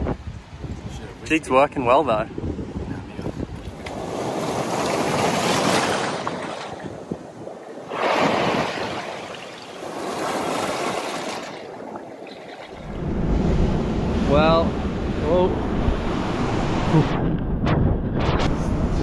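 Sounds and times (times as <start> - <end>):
ocean waves surging over rocks: 3.9 - 7.0, 7.6 - 17.2.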